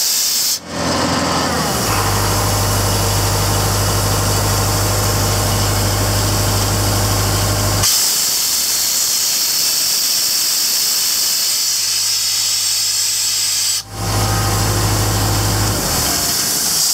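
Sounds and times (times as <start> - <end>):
compressed air hissing: 0.0 - 0.6, 2.4 - 16.9
diesel engine idling: 0.6 - 7.8, 13.8 - 16.9.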